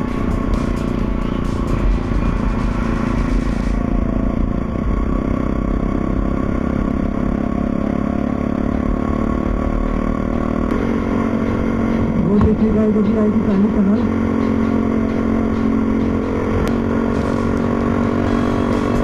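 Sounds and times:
motorcycle engine running: 0:00.0 - 0:19.0
road and wind noise: 0:00.0 - 0:19.0.

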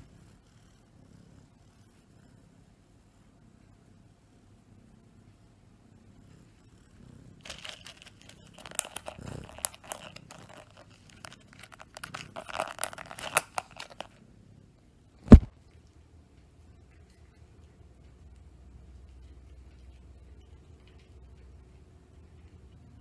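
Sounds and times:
plastic container crackling: 0:07.4 - 0:14.2.

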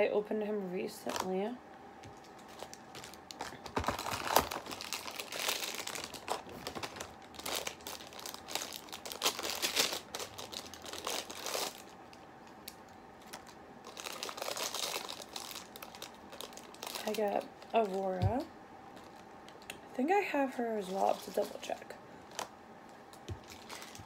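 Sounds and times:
plastic wrapper crinkling and tearing: 0:02.2 - 0:18.1, 0:21.0 - 0:22.5, 0:23.1 - 0:24.0.

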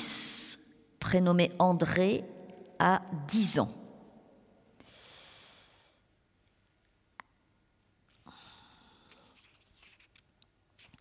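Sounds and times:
faint breathing: 0:04.8 - 0:06.1, 0:08.2 - 0:09.5.

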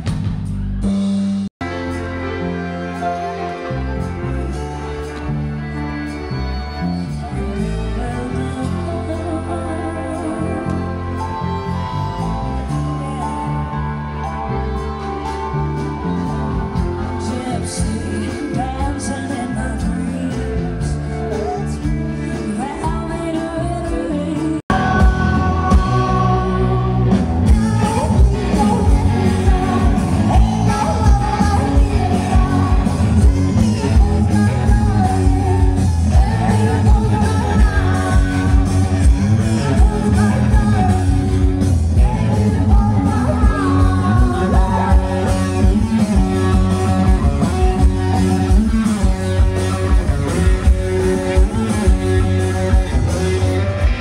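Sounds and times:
song with hard-hitting drums: 0:00.0 - 0:05.3, 0:23.8 - 0:54.0
live band music with singing: 0:00.0 - 0:54.0.

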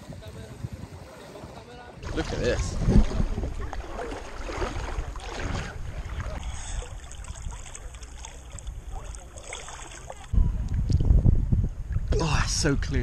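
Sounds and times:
water sloshing while wading: 0:02.0 - 0:10.4.

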